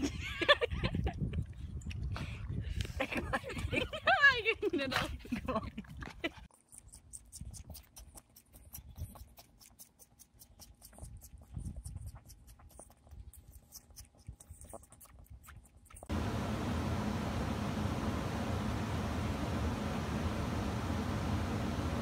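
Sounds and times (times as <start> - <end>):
goat sucking on a pacifier: 0.9 - 3.1, 5.3 - 16.2
steady hiss with low hum: 16.1 - 22.0.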